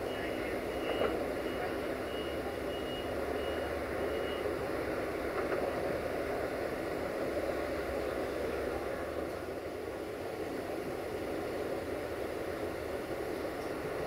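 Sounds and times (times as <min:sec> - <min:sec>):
high electronic warning beeps: 0:00.0 - 0:04.6
diesel train engine rumble: 0:00.0 - 0:14.0.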